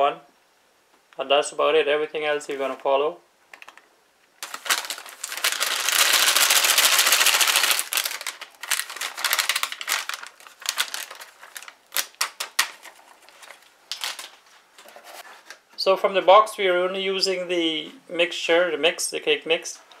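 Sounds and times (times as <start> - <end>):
plastic bag crinkling: 4.4 - 14.9.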